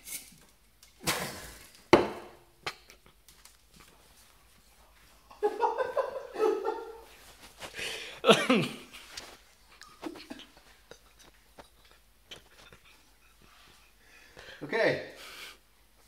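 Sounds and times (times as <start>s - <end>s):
person breathing hard through filter: 7.6s - 8.3s
person coughing: 8.0s - 8.9s.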